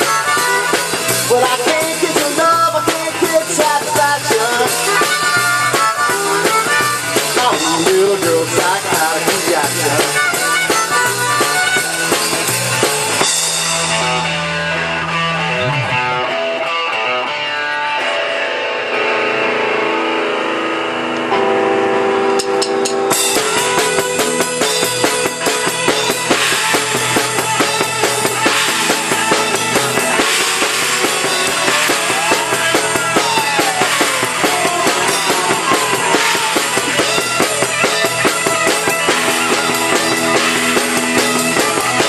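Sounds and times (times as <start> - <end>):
harmonica: 0.0 - 13.1, 23.2 - 42.0
drum kit: 0.0 - 18.3, 21.1 - 42.0
bass guitar: 0.0 - 42.0
electric guitars: 0.0 - 42.0.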